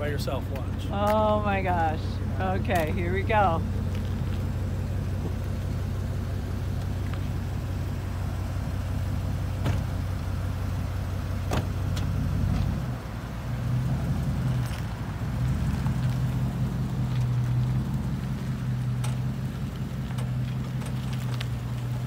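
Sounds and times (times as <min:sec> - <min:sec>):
truck engine running: 0:00.0 - 0:22.0.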